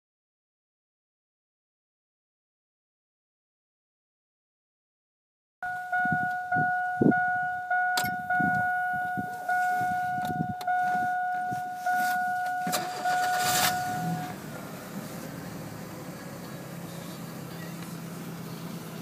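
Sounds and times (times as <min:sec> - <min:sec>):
dashboard warning chime: 0:05.6 - 0:14.5
engine idling: 0:05.6 - 0:19.0
engine starter cranking: 0:11.9 - 0:14.6.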